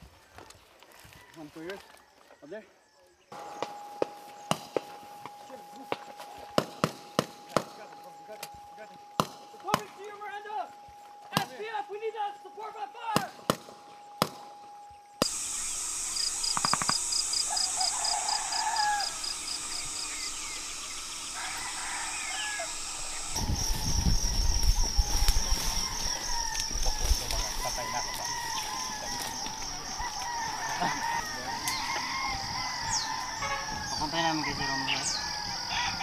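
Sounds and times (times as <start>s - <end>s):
birds calling: 2.5s - 36.0s
fast-pulsing high-pitched drone: 3.4s - 35.2s
roosters crowing: 13.0s - 36.0s.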